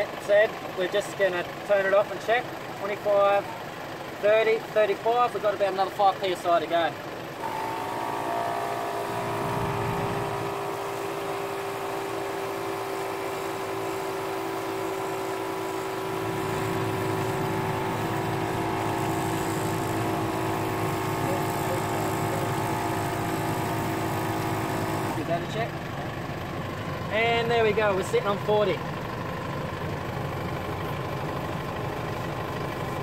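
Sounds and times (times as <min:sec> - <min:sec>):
car engine idling: 0:00.0 - 0:33.0
air compressor humming: 0:07.3 - 0:28.5.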